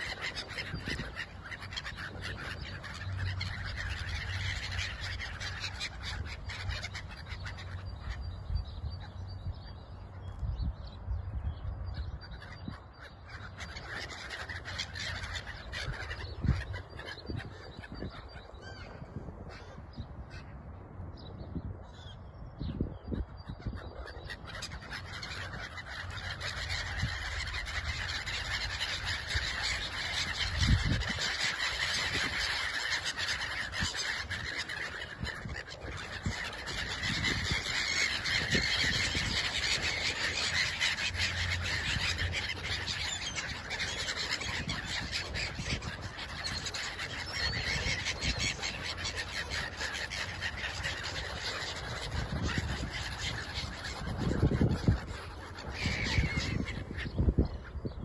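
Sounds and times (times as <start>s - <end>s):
flock of gulls calling: 0.0s - 58.0s.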